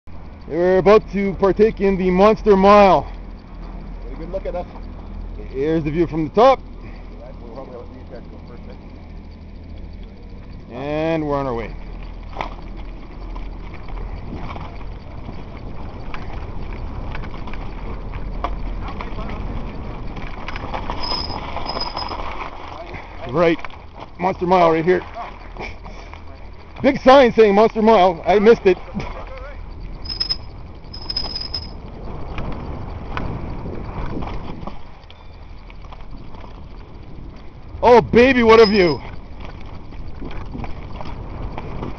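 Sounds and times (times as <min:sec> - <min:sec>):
wind rumble on microphone: 0:07.9 - 0:41.9
bike clattering: 0:11.6 - 0:41.9
bike tyres crunching on gravel: 0:11.7 - 0:25.5
thin high squeal: 0:20.9 - 0:22.3, 0:30.0 - 0:31.8, 0:38.2 - 0:39.1.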